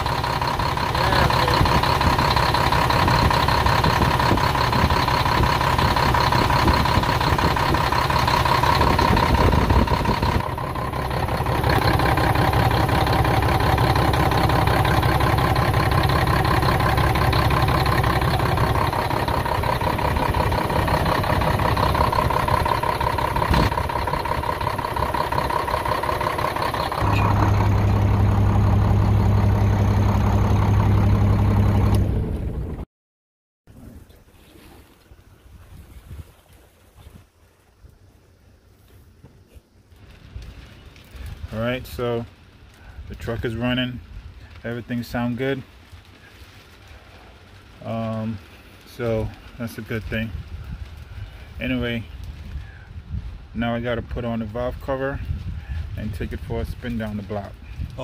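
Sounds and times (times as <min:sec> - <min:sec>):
diesel engine idling: 0:00.0 - 0:32.8.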